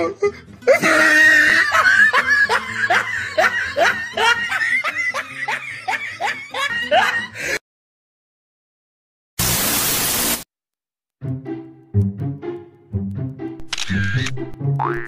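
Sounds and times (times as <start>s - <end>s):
person laughing: 0.0s - 7.6s.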